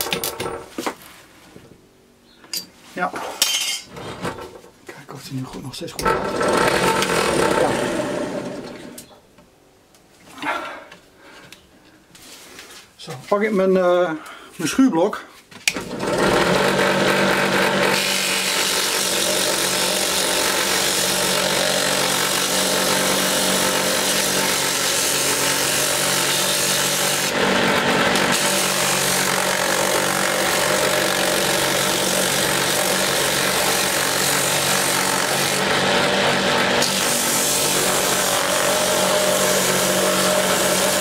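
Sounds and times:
drill press motor hum: 6.0s - 9.0s.

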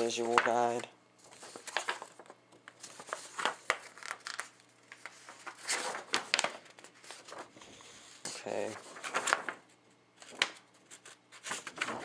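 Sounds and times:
packaging rustling and crinkling: 0.0s - 7.6s.

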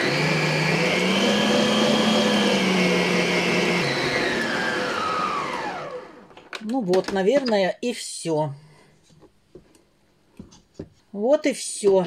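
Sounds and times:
stand mixer motor running: 0.0s - 6.2s.

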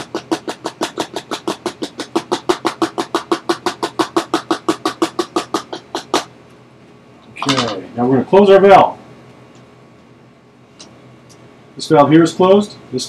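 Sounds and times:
rapid tapping on plastic funnel: 0.0s - 6.3s.

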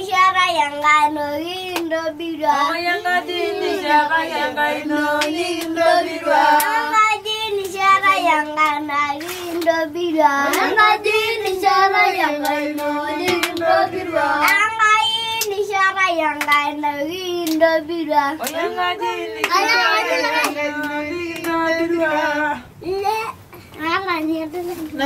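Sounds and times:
children clapping hands: 8.6s - 9.7s, 10.4s - 10.8s, 12.3s - 13.7s, 14.4s - 14.7s, 15.4s - 17.7s, 18.4s - 18.7s, 19.4s - 21.6s
children singing: 17.4s - 21.4s.

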